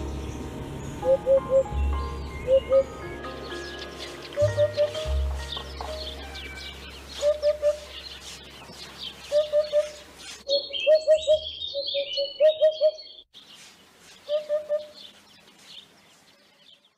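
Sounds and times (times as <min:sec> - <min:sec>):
songbirds chirping: 0:00.0 - 0:16.9
hoopoe calling low hoop notes: 0:04.3 - 0:06.3, 0:07.0 - 0:08.5, 0:09.3 - 0:10.1.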